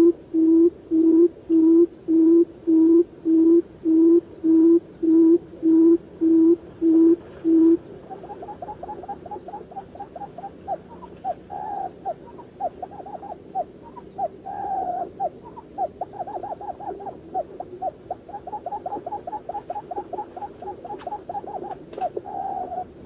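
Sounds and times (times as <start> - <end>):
bird calls: 6.9 - 23.0.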